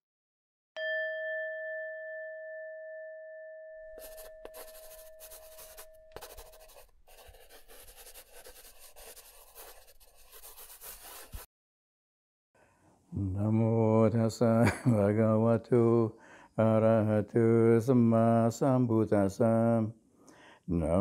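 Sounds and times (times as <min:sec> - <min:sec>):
meditation bell ringing: 0:00.8 - 0:06.4.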